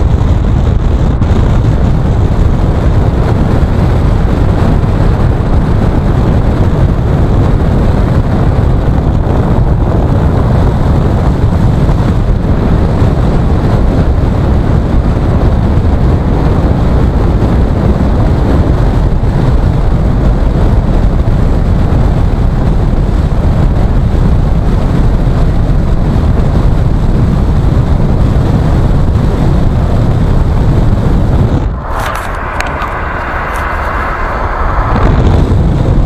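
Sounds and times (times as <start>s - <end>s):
car road noise from inside: 27.8s - 36.0s.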